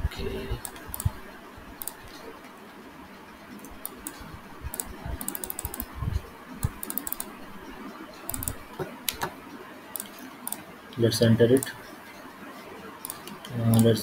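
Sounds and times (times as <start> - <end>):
mouse clicks: 0.6 - 1.2, 1.8 - 2.2, 6.6 - 7.3, 8.3 - 10.6
keyboard key presses: 3.6 - 5.9, 6.6 - 7.3, 8.3 - 9.4.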